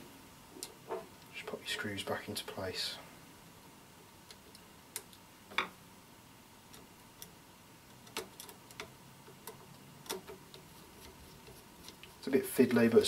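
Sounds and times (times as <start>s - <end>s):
small clicks of screws and parts: 8.0s - 10.6s.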